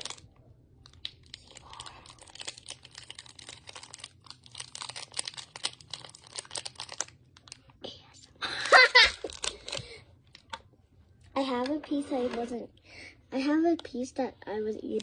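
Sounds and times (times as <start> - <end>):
plastic wrapper crinkling: 0.0 - 10.7.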